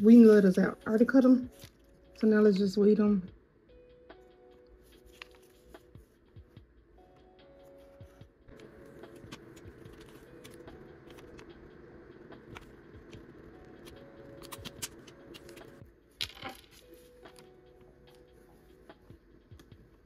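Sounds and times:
vinyl crinkling as peeled: 4.8 - 5.9, 7.8 - 11.6, 12.2 - 18.3.

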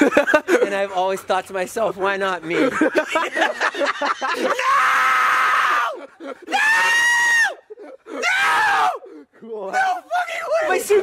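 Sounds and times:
man screaming: 4.4 - 11.0.

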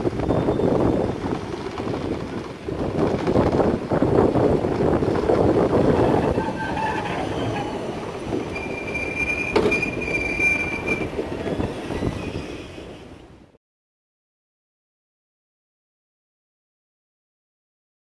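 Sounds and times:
tram wheel squeal: 0.0 - 13.5
tram rumbling past: 0.0 - 13.6.

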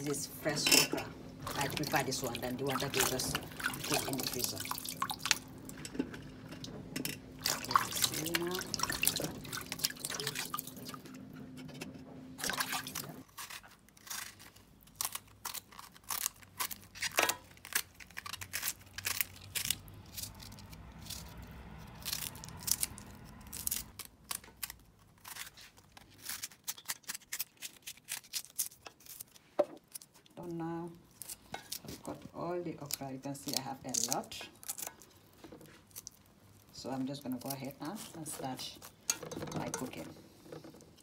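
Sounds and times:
water running in sink: 1.4 - 5.8, 7.4 - 11.1, 12.4 - 13.2.

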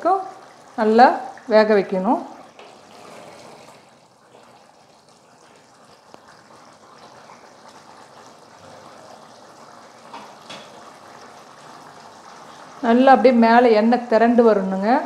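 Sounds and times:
gravy simmering and bubbling: 0.0 - 14.1.

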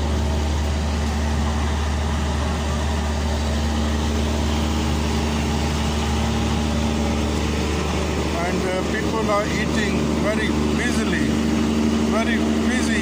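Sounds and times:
engine hum: 0.0 - 13.0
road noise from traffic: 0.0 - 13.0.

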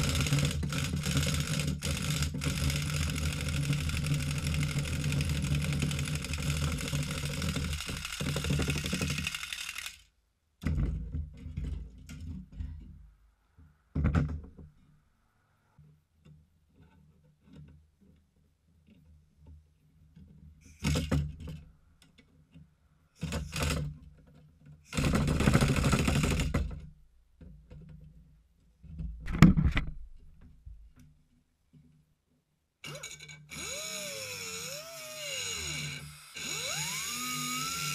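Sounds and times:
pneumatic impact wrench hammering: 0.0 - 10.0, 24.9 - 26.6, 32.8 - 37.9.

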